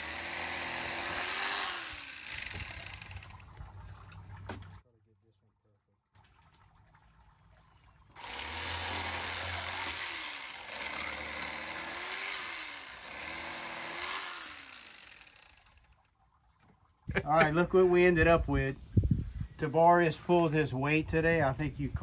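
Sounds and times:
electric fillet knife buzzing: 0:00.0 - 0:03.3, 0:08.2 - 0:15.9.

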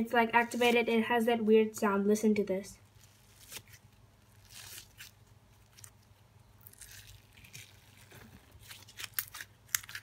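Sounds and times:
slime crackling and squishing: 0:02.8 - 0:10.0.

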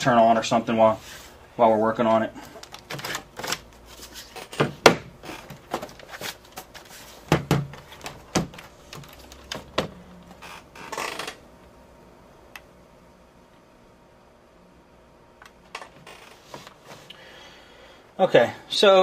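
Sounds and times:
laptop knocks and clicks: 0:07.3 - 0:10.0.

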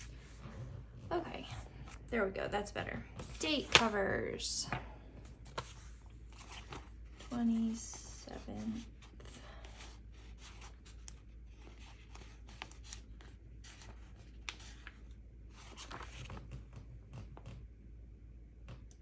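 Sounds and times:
paper crinkling and scraping: 0:05.3 - 0:17.5.

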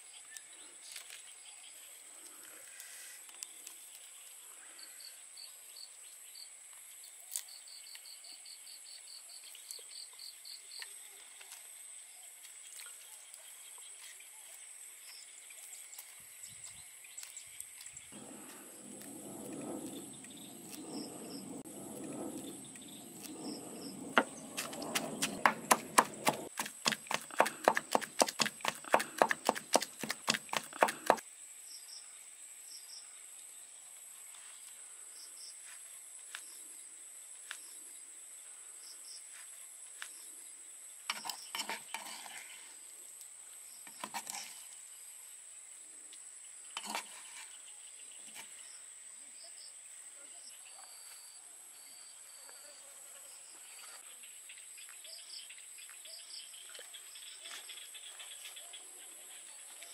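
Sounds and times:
spoon scraping in mortar: 0:23.2 - 0:31.2, 0:41.1 - 0:42.7, 0:46.8 - 0:47.6
pestle pounding in wooden mortar: 0:24.2 - 0:31.2.

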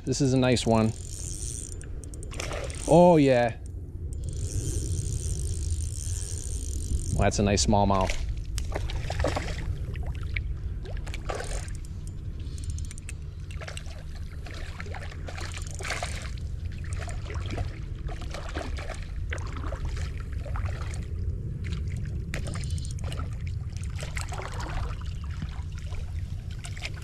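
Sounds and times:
low rumble: 0:00.0 - 0:27.0
creek water splashing: 0:08.1 - 0:12.0, 0:13.3 - 0:27.0.

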